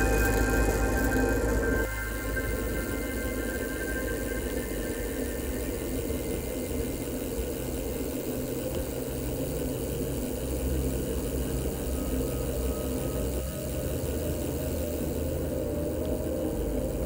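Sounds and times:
bike tyres rolling on wet asphalt: 0.0s - 1.9s, 5.7s - 17.0s.

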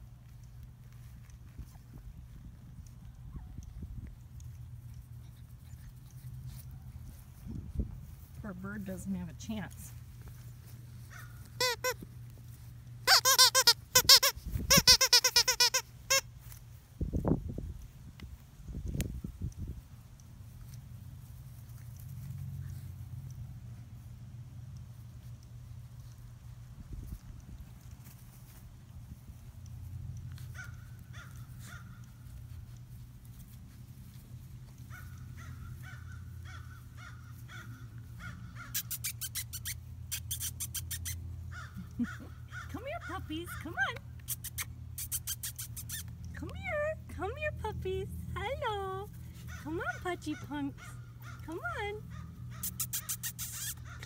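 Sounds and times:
squeaky toy squeaking: 11.6s - 12.1s, 13.0s - 16.3s, 38.6s - 41.3s, 44.2s - 46.2s, 52.5s - 54.0s
crows cawing: 30.6s - 32.0s, 34.9s - 38.8s, 41.5s - 41.8s
puppies scrambling against camera: 52.0s - 54.0s.

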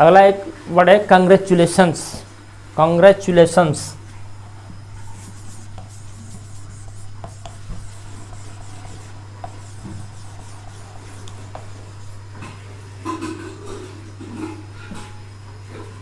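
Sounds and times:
steady low hum: 0.0s - 16.0s
marker writing on whiteboard: 5.0s - 12.3s.

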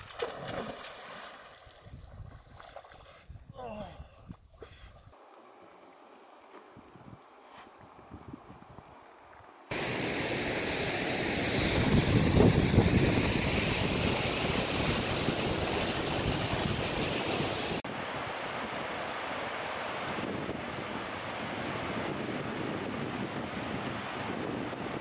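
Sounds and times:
stream rushing over rocks: 9.7s - 25.0s
wind buffeting microphone: 11.5s - 17.8s, 20.2s - 25.0s.

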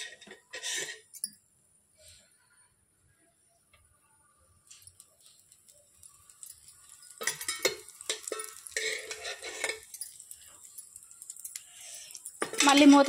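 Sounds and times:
spoon scraping a griddle: 0.0s - 1.3s, 4.7s - 13.0s
glass bangles jingling: 6.1s - 13.0s.

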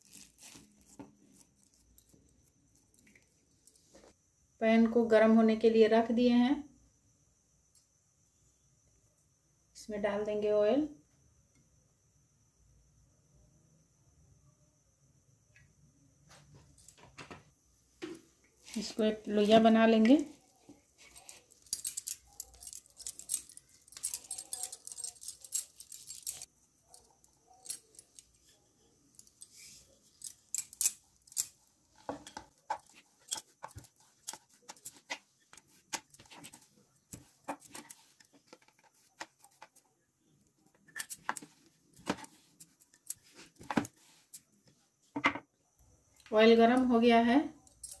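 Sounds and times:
bangles clinking: 20.4s - 39.9s, 47.6s - 48.0s.

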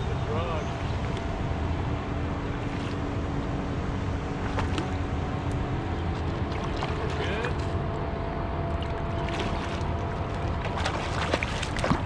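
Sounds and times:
distant motorboat drone: 0.0s - 12.0s
wind rumble on microphone: 0.0s - 12.0s
fish splashing at surface: 8.8s - 12.0s.

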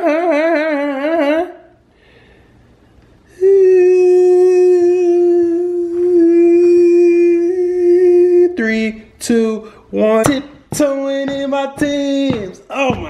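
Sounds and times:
person humming a long note: 3.3s - 8.6s.

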